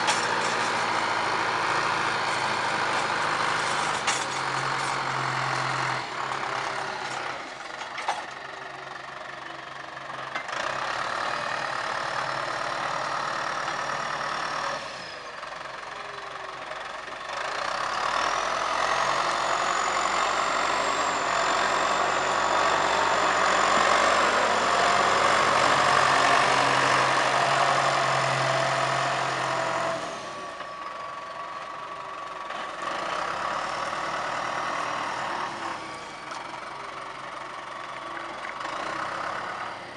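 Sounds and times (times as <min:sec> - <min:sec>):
tractor diesel engine under load: 0:00.0 - 0:39.9.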